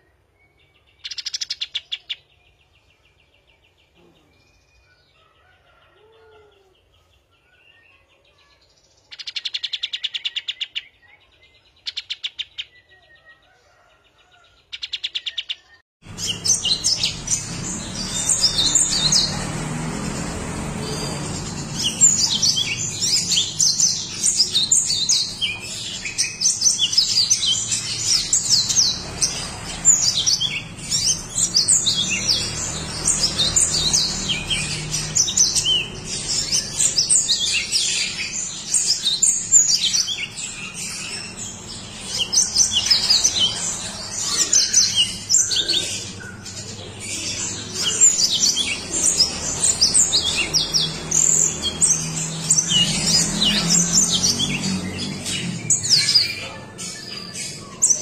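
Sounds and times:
canary singing: 0.0s - 58.0s.

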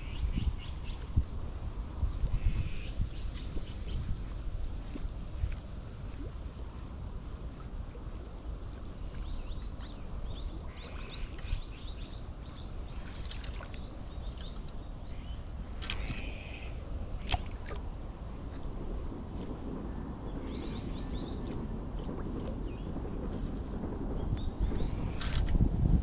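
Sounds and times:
low rumble: 0.0s - 26.0s
river water lapping: 4.8s - 19.5s.

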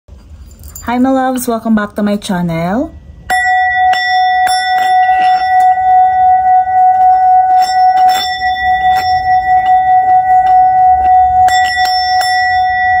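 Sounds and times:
sustained bell-like ringing: 3.0s - 13.0s.

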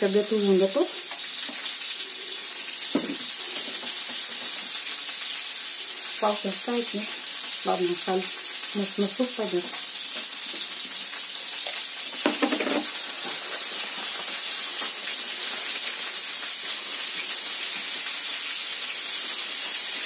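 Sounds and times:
dumplings sizzling in oil: 0.0s - 20.0s.

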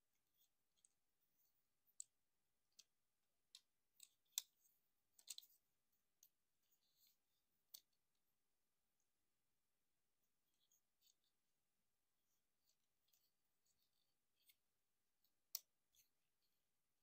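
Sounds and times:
plastic toy parts clicking: 5.2s - 5.5s.

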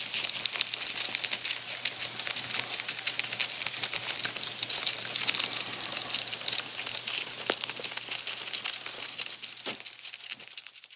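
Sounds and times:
rats gnawing corn: 0.0s - 10.9s.

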